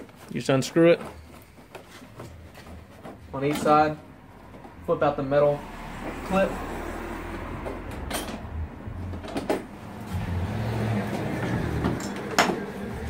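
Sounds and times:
rustling handling noise: 0.0 - 5.0.

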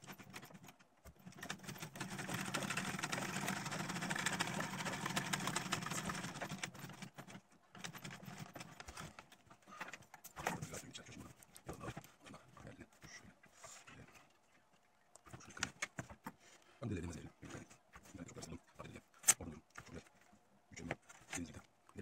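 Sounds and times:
sewing machine stitching: 0.0 - 9.2.

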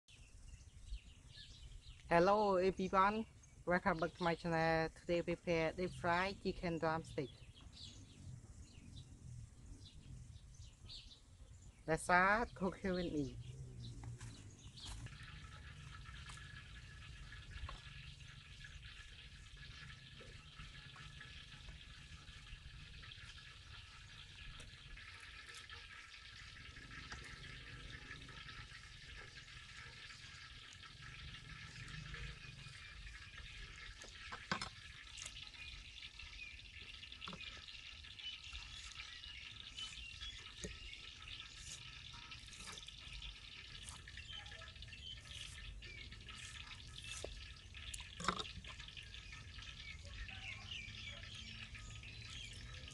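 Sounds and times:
water splashing in a basin: 14.2 - 52.9.

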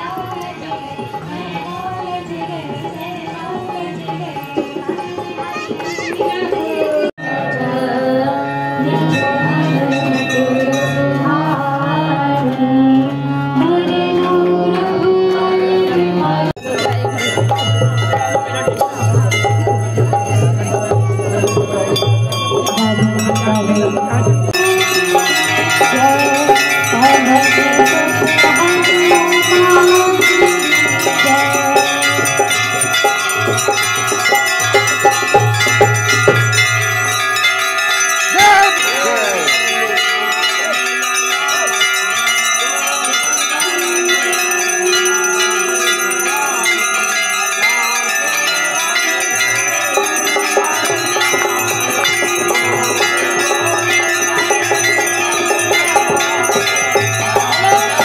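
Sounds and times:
brass bells ringing: 7.2 - 11.9, 16.6 - 58.0.

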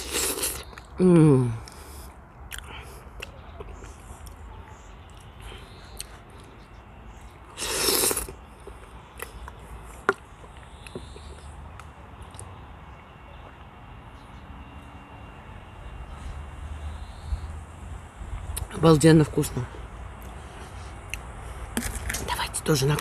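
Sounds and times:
soft chewing: 1.6 - 12.5.

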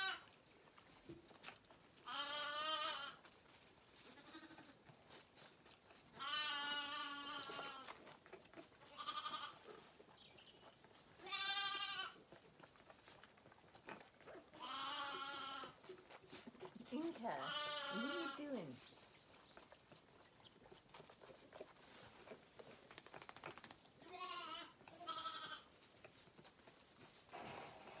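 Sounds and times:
lambs bleating: 0.0 - 0.3, 2.0 - 3.2, 4.0 - 4.8, 6.1 - 8.0, 8.8 - 9.7, 11.2 - 12.2, 14.5 - 15.8, 16.9 - 18.8, 24.0 - 25.8.

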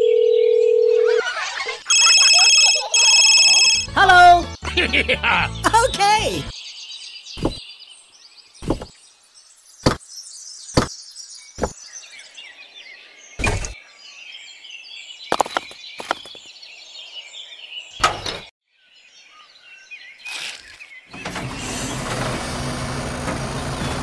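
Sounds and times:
birds chirping: 1.2 - 21.3
sharp knocks: 7.4 - 7.6.

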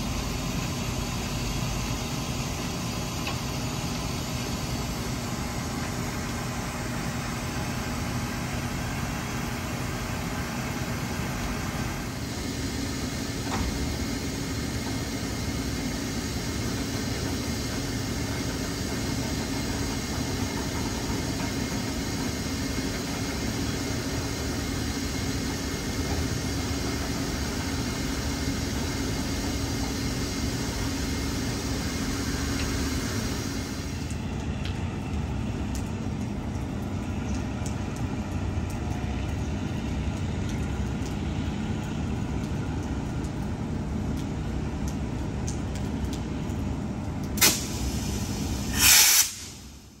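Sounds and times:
electric locomotive humming: 0.0 - 49.8
loud bursts of hiss: 47.4 - 49.8.

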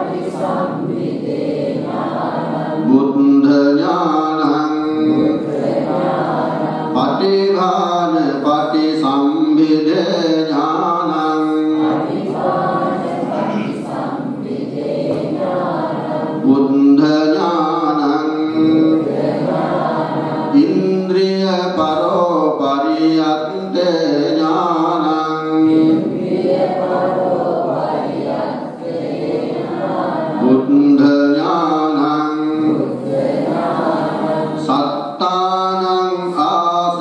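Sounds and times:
voices chanting in unison: 0.0 - 37.0.

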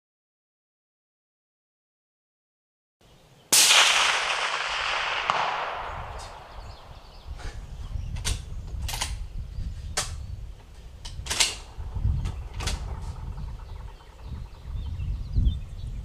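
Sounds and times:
steady low rumble: 11.0 - 16.0.

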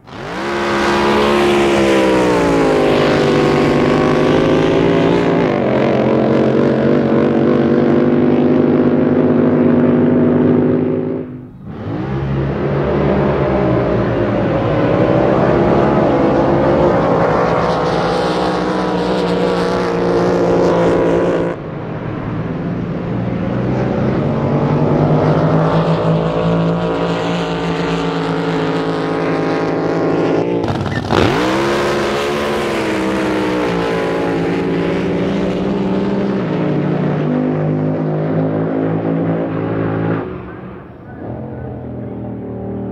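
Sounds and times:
boat engine revving up: 0.0 - 42.9
racing boat engines roaring: 0.0 - 42.9.

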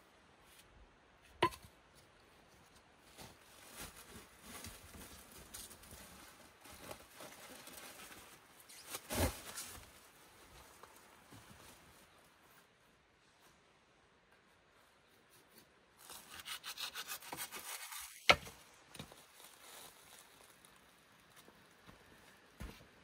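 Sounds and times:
plastic wrap rustling and crinkling: 3.1 - 11.8, 19.0 - 20.9.

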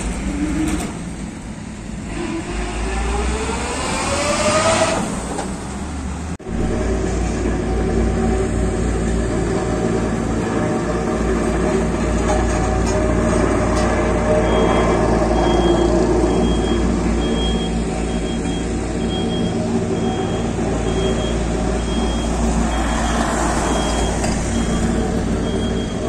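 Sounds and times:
construction machines engine hum: 0.0 - 26.0
reversing alarm beeps: 14.4 - 26.0.

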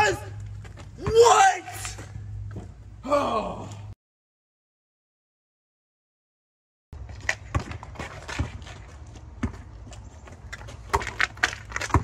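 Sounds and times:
sneaker footsteps on driveway: 0.0 - 3.0, 7.0 - 12.0
basketball bouncing: 7.2 - 8.8, 9.4 - 9.8, 10.6 - 12.0.

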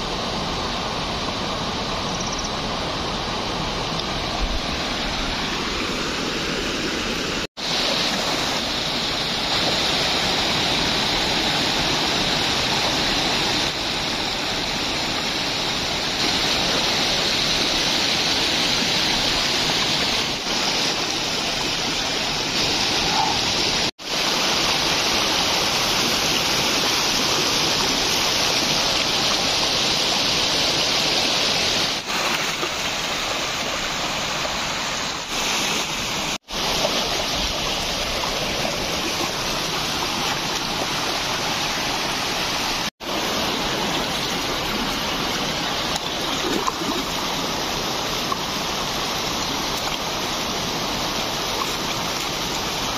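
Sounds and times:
splashing in water: 31.9 - 52.9.

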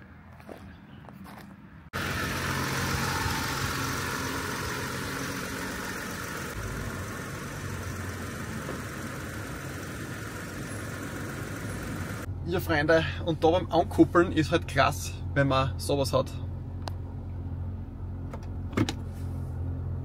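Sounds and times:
truck engine running: 1.9 - 13.8.

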